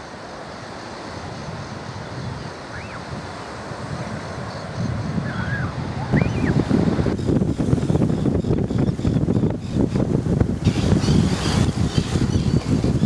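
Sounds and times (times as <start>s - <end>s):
surf: 0.0s - 13.0s
wind rumbling on microphone: 0.0s - 13.0s
tern calls: 2.6s - 3.1s.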